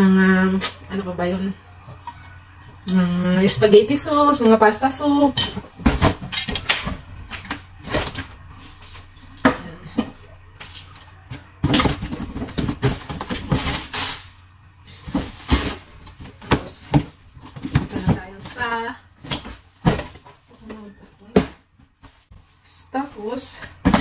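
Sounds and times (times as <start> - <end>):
cardboard scraping rustle: 11.2 - 18.7.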